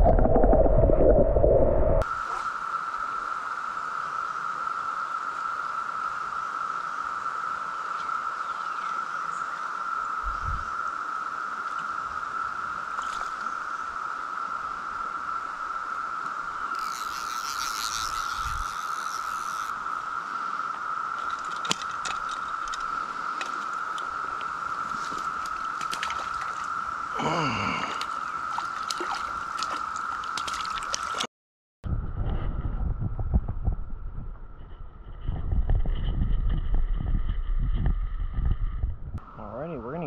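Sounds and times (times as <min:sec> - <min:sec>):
cicada chorus high drone: 0:02.0 - 0:31.2, 0:39.2 - 0:40.0.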